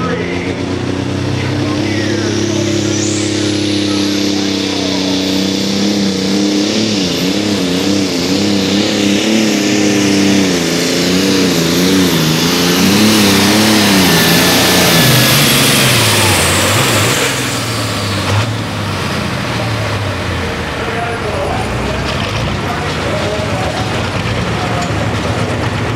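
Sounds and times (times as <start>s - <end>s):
tractor engine running hard: 0.0s - 25.9s
thin high whine: 1.6s - 6.1s.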